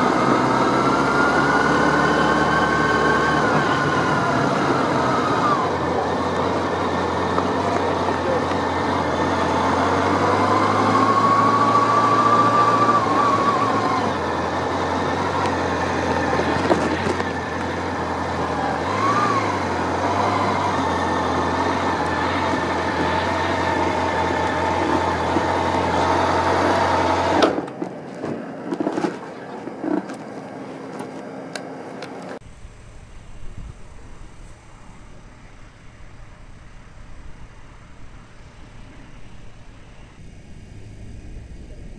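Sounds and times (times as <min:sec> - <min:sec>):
motorcycle engine idling: 0:32.4 - 0:41.9.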